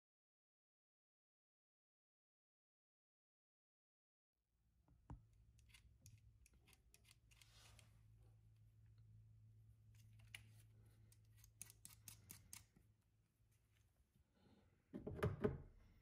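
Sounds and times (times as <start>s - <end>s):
rivet tool metallic clicks: 11.2s - 12.7s.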